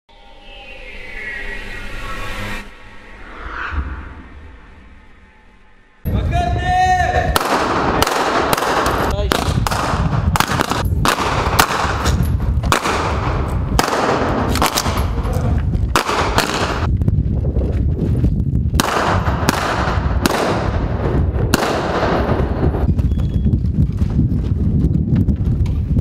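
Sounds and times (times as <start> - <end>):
gunshot echo off walls: 7.3 - 15.1, 16.0 - 16.9, 18.8 - 20.9, 21.5 - 22.6
rifles firing blank rounds: 7.4 - 12.1.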